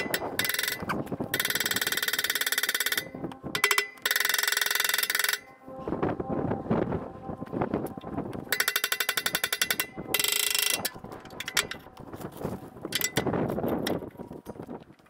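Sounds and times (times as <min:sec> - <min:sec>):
hand ratchet clicking: 0:00.0 - 0:05.5, 0:08.5 - 0:11.9, 0:12.9 - 0:14.0.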